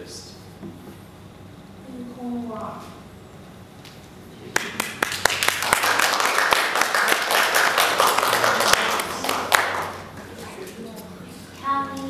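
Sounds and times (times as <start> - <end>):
people applauding: 4.5 - 10.4.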